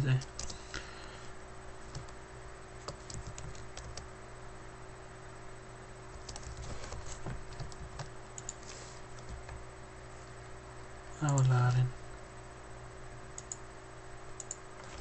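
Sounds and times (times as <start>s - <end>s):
keyboard typing: 0.0s - 0.6s, 1.9s - 2.2s, 2.8s - 4.1s, 6.2s - 9.6s, 13.4s - 13.6s
faint steady hum: 0.0s - 15.0s.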